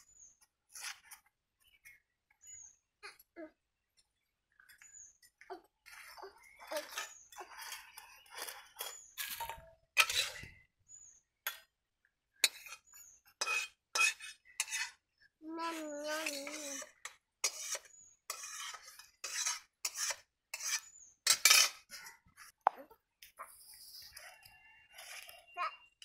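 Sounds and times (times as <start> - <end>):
ladle scraping and clinking on metal: 5.9 - 10.5, 12.4 - 15.0, 16.2 - 22.2.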